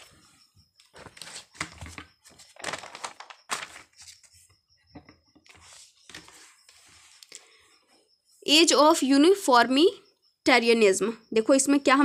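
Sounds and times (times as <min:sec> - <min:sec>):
paper rustling: 0:00.8 - 0:04.5, 0:05.5 - 0:07.2.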